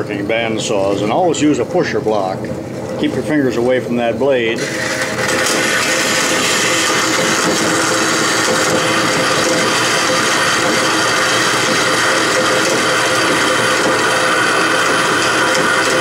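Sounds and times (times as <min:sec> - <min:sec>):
bandsaw cutting metal: 0:04.6 - 0:16.0.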